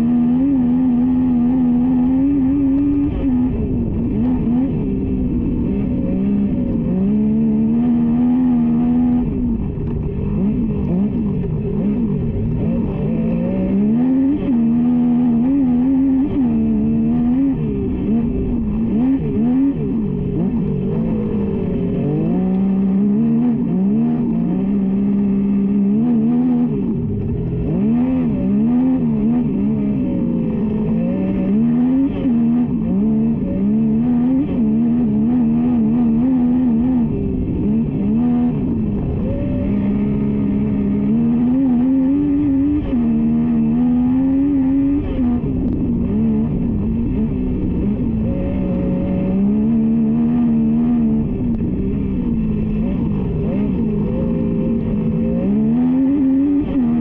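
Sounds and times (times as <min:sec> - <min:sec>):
kart engine revving: 0:00.0 - 0:57.0.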